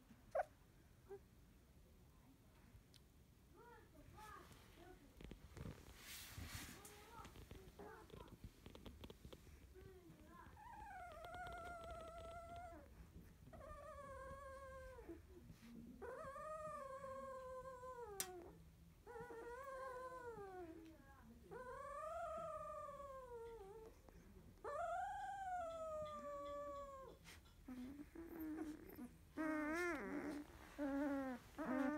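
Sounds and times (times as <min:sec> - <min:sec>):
puppy whining: 0:06.8 - 0:20.9, 0:21.5 - 0:31.9.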